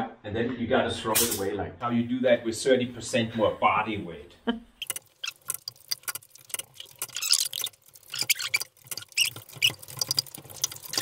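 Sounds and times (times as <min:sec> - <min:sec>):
bolt and tool squeaking: 0:04.8 - 0:05.6, 0:06.6 - 0:10.2.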